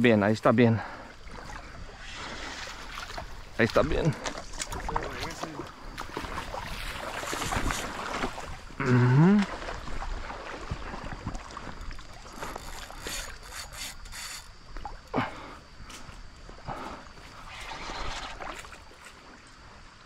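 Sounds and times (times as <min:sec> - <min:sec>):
river current rushing: 0:11.8 - 0:14.6.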